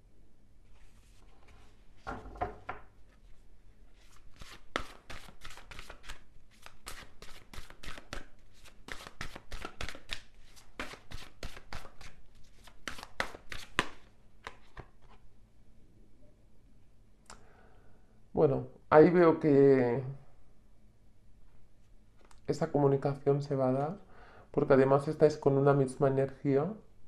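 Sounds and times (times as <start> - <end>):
cards being shuffled: 4.0 - 15.2.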